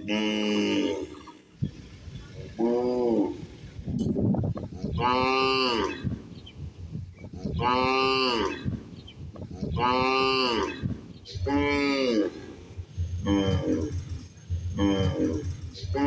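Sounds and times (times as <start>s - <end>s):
cow mooing: 5.0s - 6.1s, 7.6s - 8.7s, 9.7s - 12.5s, 13.2s - 14.0s, 14.7s - 16.0s.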